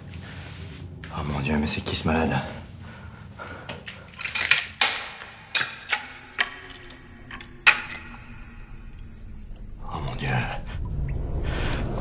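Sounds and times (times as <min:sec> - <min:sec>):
faint low drone: 0:05.2 - 0:12.0.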